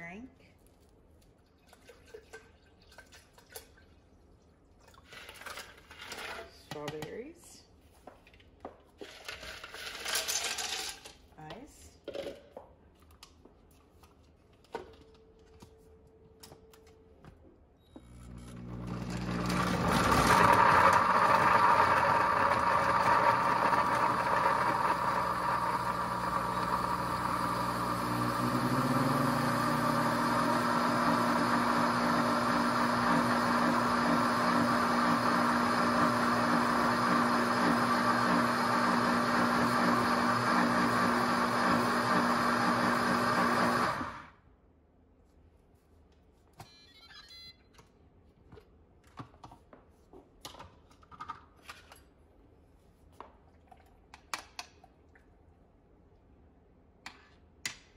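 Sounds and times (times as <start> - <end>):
blender churning ice: 18.2 - 44.4.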